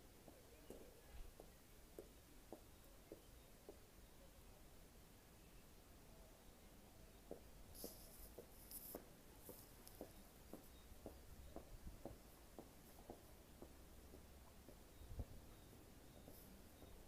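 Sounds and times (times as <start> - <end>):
faint hissy scratches: 7.7 - 10.9, 16.0 - 17.0.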